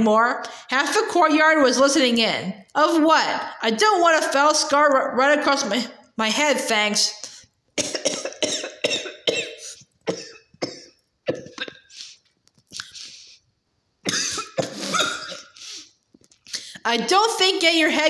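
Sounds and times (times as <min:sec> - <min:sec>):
person clearing throat: 0:07.8 - 0:12.2, 0:14.1 - 0:15.6
person coughing: 0:07.8 - 0:12.2, 0:14.1 - 0:15.9.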